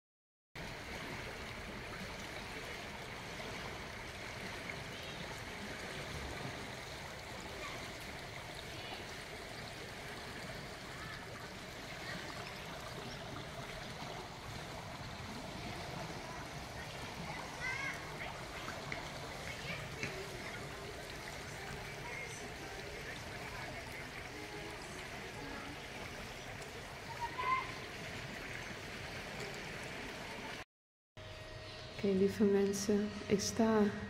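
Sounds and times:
river water rushing: 0:00.6 - 0:30.6.

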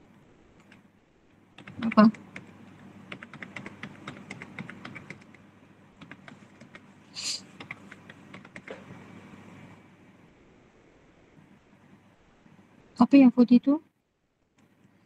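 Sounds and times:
typing on computer keyboard: 0:01.6 - 0:08.9.

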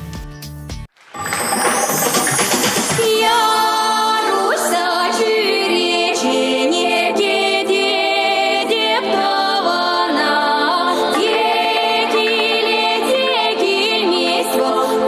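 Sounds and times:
women singing in harmony: 0:03.0 - 0:15.0.

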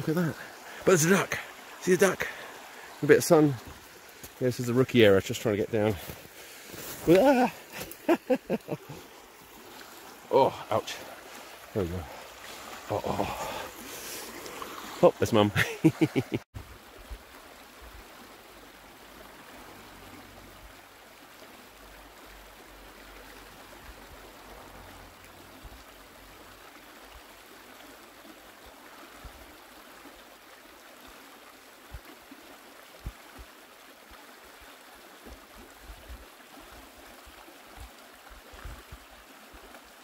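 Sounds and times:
river rushing over stones: 0:00.0 - 0:40.0.

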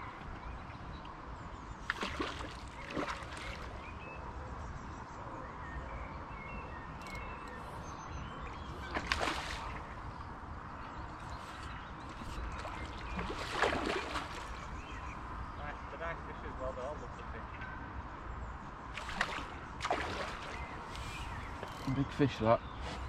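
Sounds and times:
fish splashing at the surface: 0:01.9 - 0:03.8, 0:08.8 - 0:09.9, 0:12.6 - 0:14.6, 0:19.0 - 0:20.7
faint bird chirps: 0:02.8 - 0:10.2, 0:20.2 - 0:23.0.

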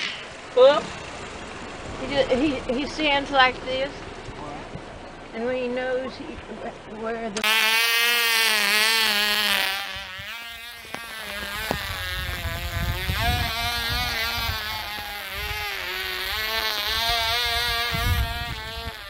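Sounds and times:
model engine high buzz: 0:07.4 - 0:19.0
wind rumble on microphone: 0:11.3 - 0:19.0.

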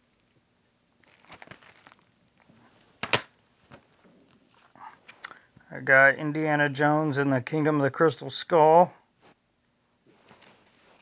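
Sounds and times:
plastic wrap crinkling: 0:01.0 - 0:03.9.

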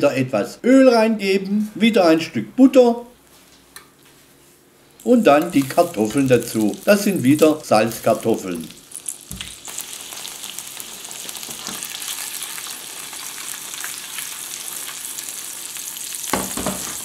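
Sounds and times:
potatoes sizzling in frying pan: 0:05.0 - 0:07.6, 0:08.2 - 0:17.0.

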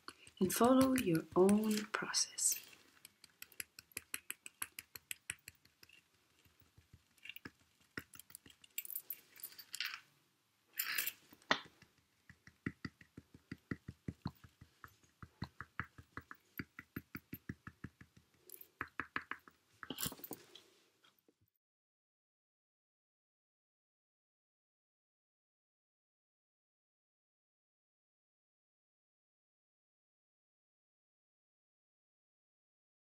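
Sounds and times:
cotton swab tapping paper: 0:00.0 - 0:02.1, 0:03.0 - 0:05.9, 0:11.5 - 0:19.6.

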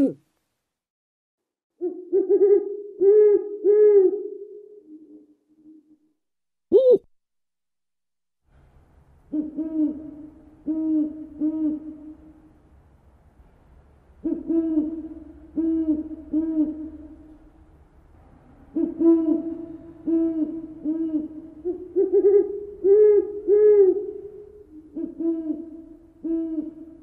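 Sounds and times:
owl hooting: 0:01.8 - 0:06.0, 0:06.7 - 0:07.1, 0:09.3 - 0:12.5, 0:14.2 - 0:17.4, 0:18.7 - 0:27.0.

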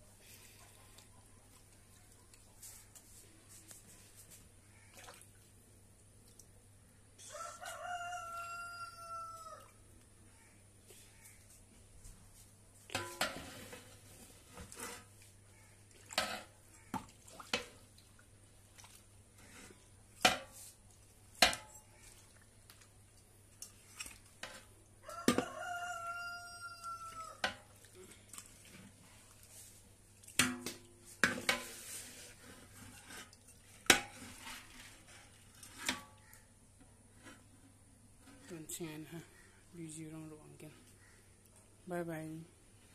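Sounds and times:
rooster crowing: 0:07.2 - 0:09.8, 0:25.0 - 0:27.4
utensil clanking metal pot: 0:12.9 - 0:13.6.

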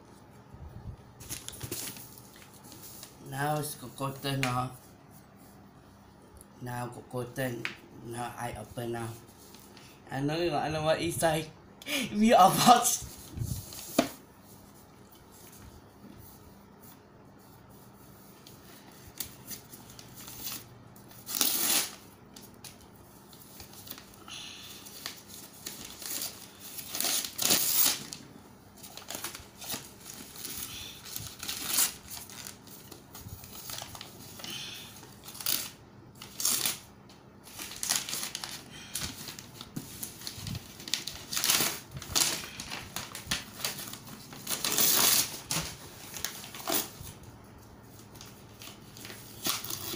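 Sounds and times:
wrapping paper tearing and crinkling: 0:19.1 - 0:22.8, 0:23.4 - 0:28.2, 0:28.8 - 0:47.2, 0:47.9 - 0:49.9.

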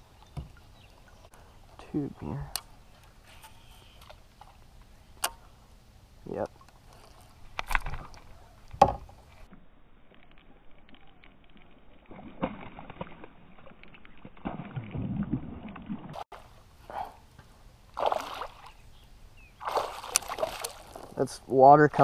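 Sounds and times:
water noise: 0:00.0 - 0:22.0
water splash: 0:12.0 - 0:16.6, 0:17.9 - 0:18.8, 0:19.6 - 0:21.1.

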